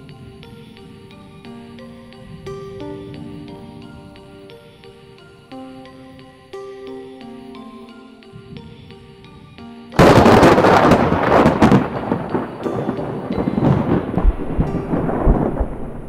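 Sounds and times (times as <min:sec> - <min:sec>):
soft music: 0:00.0 - 0:16.0
thunder crash and rumble: 0:10.0 - 0:16.0.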